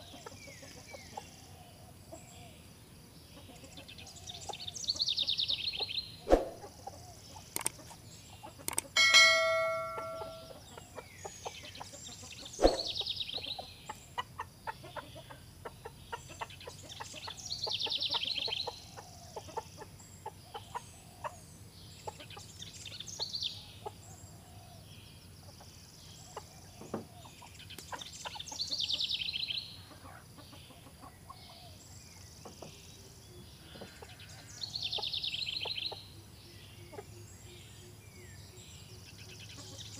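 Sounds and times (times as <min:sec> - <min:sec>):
chickens: 0:00.0 - 0:02.4, 0:03.1 - 0:37.2, 0:39.2 - 0:39.9
bell-like ringing tone: 0:09.0 - 0:10.6
short high trills: 0:09.0 - 0:10.6.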